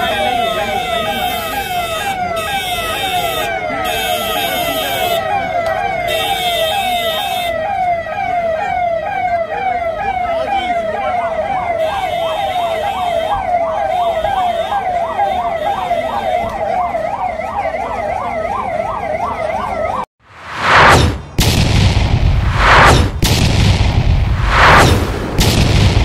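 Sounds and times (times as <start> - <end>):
siren yelping: 0.0 - 20.1
low rumble: 20.3 - 26.0
rushes of noise: 20.3 - 26.0.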